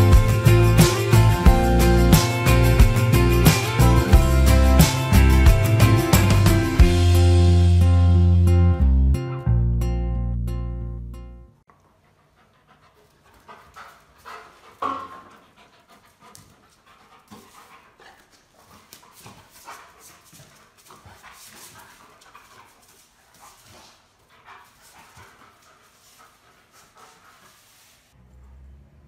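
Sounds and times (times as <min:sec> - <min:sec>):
dog panting: 0:11.7 - 0:28.1.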